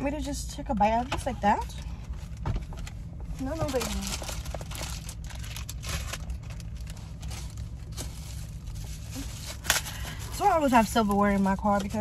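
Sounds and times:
steady low hum: 0.0s - 12.0s
plastic rustling and crinkling: 3.3s - 12.0s.

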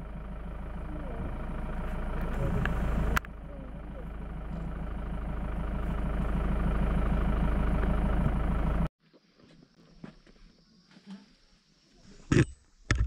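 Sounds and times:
vehicle engine running: 0.0s - 8.9s.

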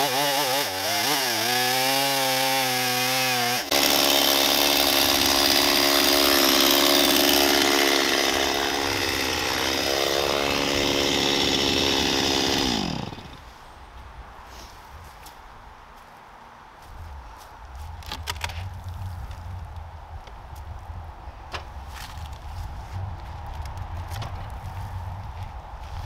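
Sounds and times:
chainsaw cutting log: 0.0s - 13.5s.

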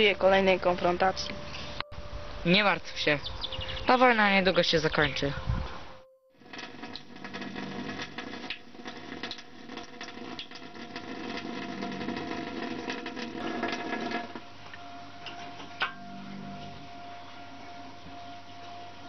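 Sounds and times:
tap water running into sink: 6.5s - 14.4s.

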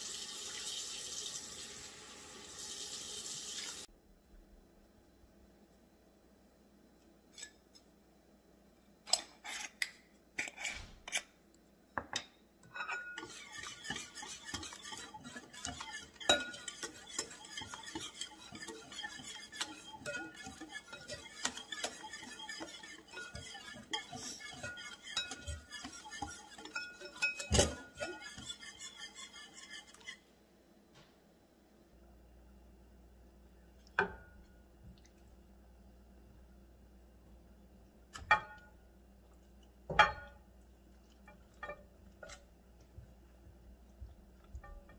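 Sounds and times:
wire whisk beating in a bowl: 13.0s - 30.1s.

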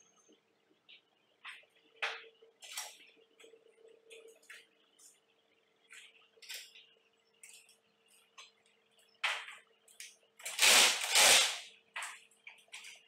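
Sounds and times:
cordless drill running: 10.5s - 11.6s.

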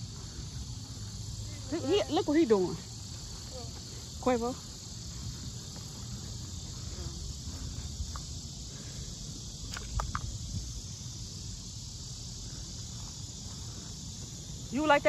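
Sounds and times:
insects chirring: 0.0s - 15.0s
wind rumble on microphone: 9.5s - 11.2s.

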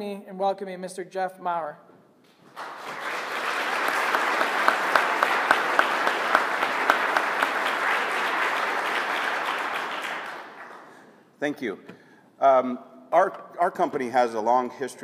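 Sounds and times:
sharp nearby claps: 2.3s - 11.1s
audience applauding: 2.3s - 11.2s.

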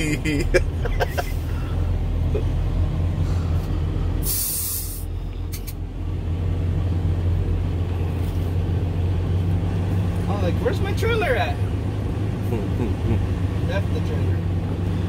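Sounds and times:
truck diesel engine running: 0.0s - 15.0s
air brakes hiss: 4.2s - 5.8s.

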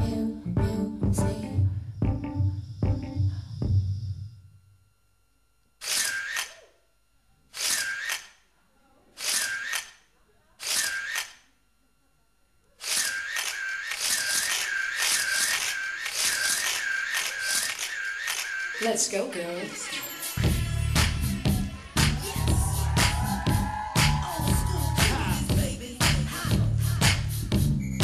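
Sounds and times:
scratchy hissing dance track: 14.2s - 28.0s.

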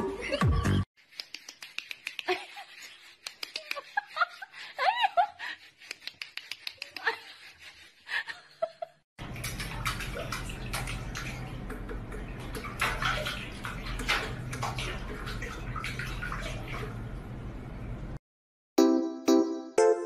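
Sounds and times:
water running and splashing in sink: 9.2s - 17.3s.

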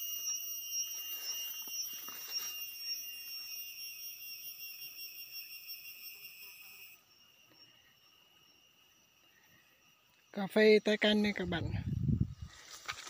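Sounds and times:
insects chirring: 0.0s - 13.0s
leaves rustling: 1.1s - 2.6s, 11.3s - 13.0s.

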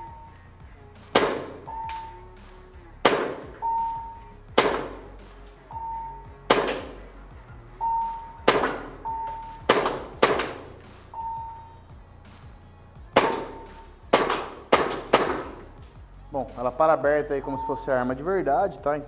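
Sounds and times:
airsoft pistol shots: 1.1s - 1.7s, 3.0s - 3.6s, 4.6s - 5.1s, 6.5s - 7.0s, 8.4s - 9.0s, 9.6s - 10.8s, 13.2s - 15.7s.

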